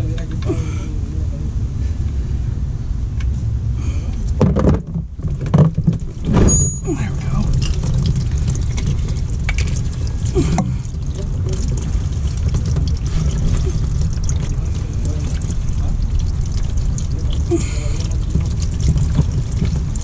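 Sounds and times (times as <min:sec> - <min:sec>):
low rumble: 0:00.0 - 0:20.0
oil pouring into drain pan: 0:04.6 - 0:20.0.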